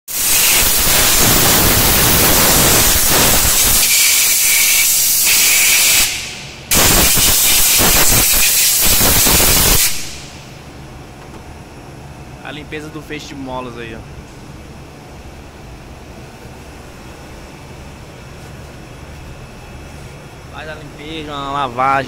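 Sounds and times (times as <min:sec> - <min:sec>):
pressure washer jet hissing: 0:00.1 - 0:10.4.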